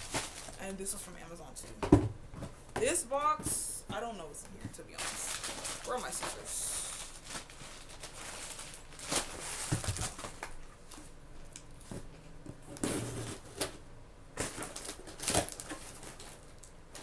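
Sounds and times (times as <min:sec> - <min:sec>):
cardboard rustling and tearing: 0:00.0 - 0:00.6, 0:05.0 - 0:10.6, 0:12.7 - 0:13.8, 0:14.4 - 0:17.0.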